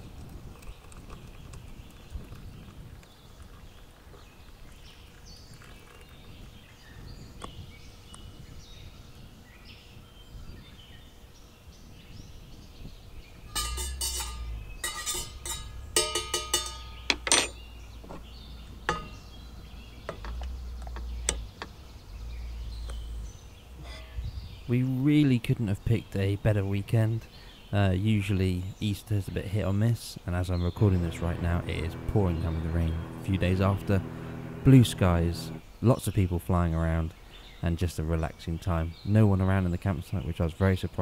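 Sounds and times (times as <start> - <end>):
teaspoon clinking in metal mug: 13.5 - 17.5.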